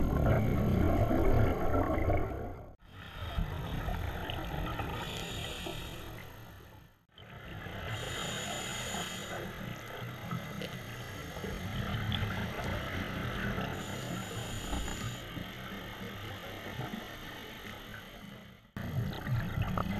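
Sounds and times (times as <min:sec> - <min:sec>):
underwater exhaust bubbles: 0:00.0 - 0:19.9
regulator inhalation hiss: 0:04.9 - 0:06.7, 0:07.8 - 0:12.0, 0:13.7 - 0:18.5.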